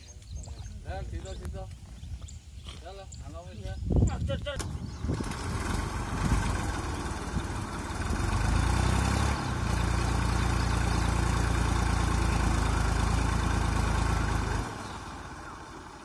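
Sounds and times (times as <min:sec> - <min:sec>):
diesel tractor engines working: 0:04.1 - 0:16.0.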